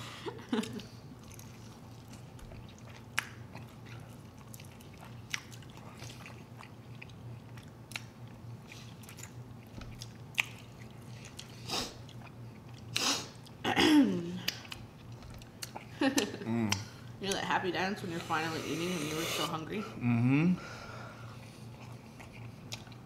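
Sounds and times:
faint low hum: 0.0 - 23.0
people chewing: 0.2 - 13.6, 14.3 - 17.5, 21.2 - 23.0.

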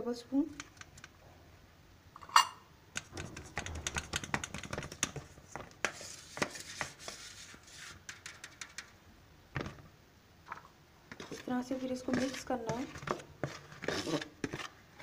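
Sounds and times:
spoon tapping and scraping sieve: 2.3 - 9.0, 11.1 - 14.8.

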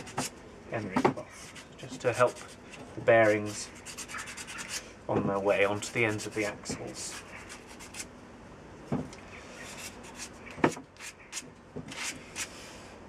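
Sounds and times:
emery cloth scratching metal: 1.4 - 4.8.

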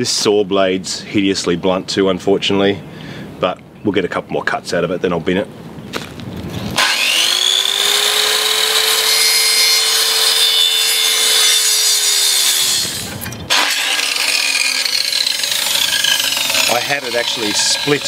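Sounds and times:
circular saw whining: 6.8 - 18.0.

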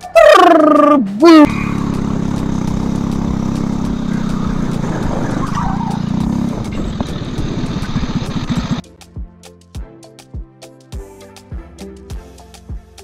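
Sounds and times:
go-kart engine running: 1.2 - 8.8
music with a beat: 8.8 - 13.0.

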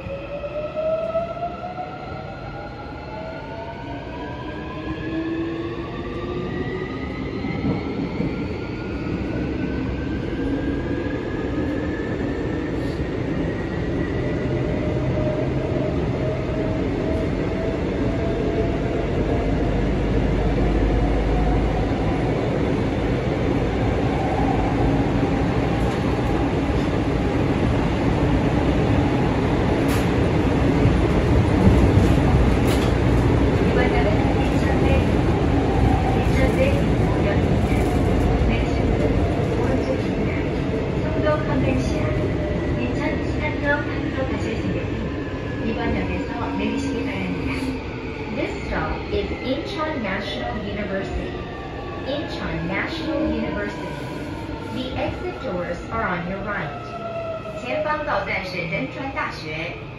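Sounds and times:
wheels rumbling on rail: 19.5 - 45.2.

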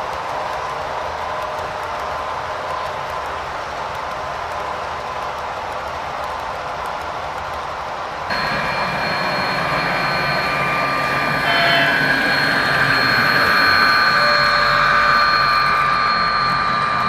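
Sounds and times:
model train whirring: 0.0 - 17.0.

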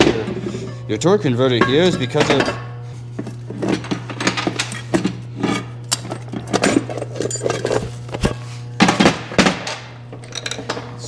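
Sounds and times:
steady low hum: 0.0 - 11.0
metal parts clanking: 3.7 - 8.3, 9.0 - 11.0.

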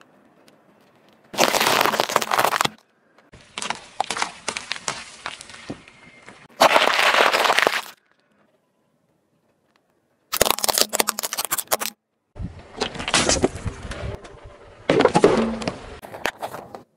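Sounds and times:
tyre crunching vegetables: 1.3 - 2.8, 6.5 - 8.0, 10.3 - 12.0.

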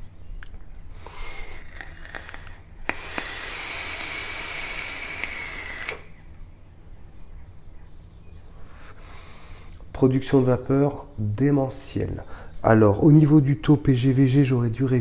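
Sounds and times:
vape atomizer airflow hiss: 1.0 - 6.2.

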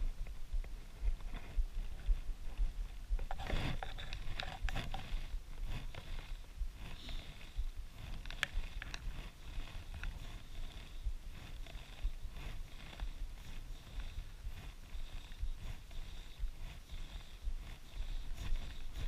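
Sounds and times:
wind rumble on microphone: 0.0 - 19.0
small clicks and scrapes: 0.2 - 19.0.

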